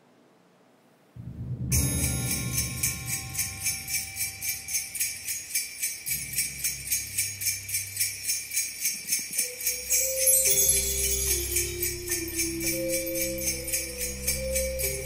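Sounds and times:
low bass line: 0:01.2 - 0:04.8
sleigh bells jingling: 0:01.7 - 0:15.0.

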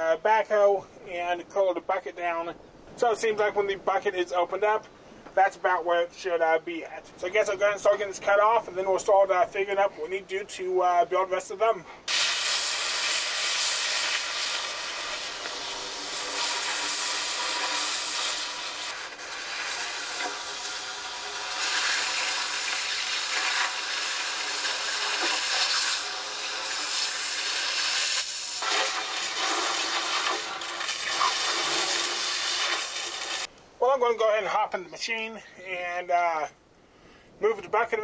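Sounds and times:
cutting torch hissing: 0:12.1 - 0:33.5.

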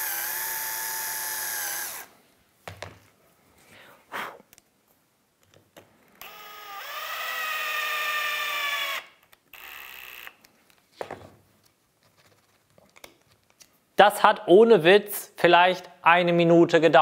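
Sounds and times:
drill-driver motor whining: 0:00.0 - 0:02.1, 0:06.2 - 0:10.4.

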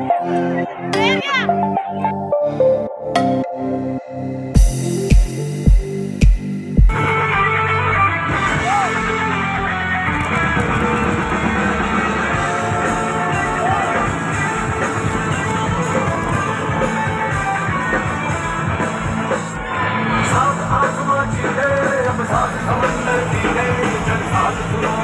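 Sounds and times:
music with steady beat: 0:00.0 - 0:19.6.

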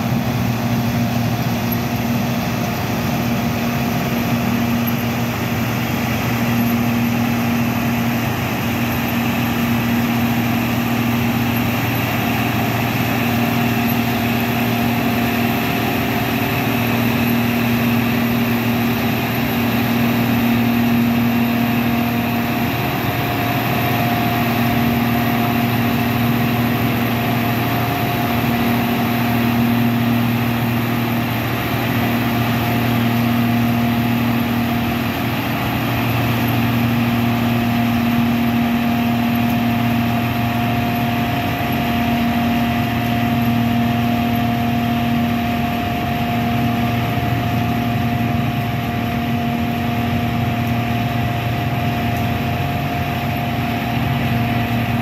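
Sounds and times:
combine harvester droning: 0:00.0 - 0:55.0.

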